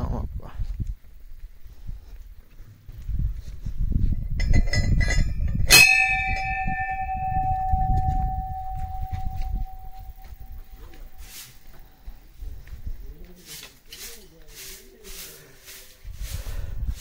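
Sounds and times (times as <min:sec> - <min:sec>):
temple bell ringing: 0:04.4 - 0:11.4
light bell ringing notes: 0:04.5 - 0:11.5
low rumble: 0:05.2 - 0:11.2.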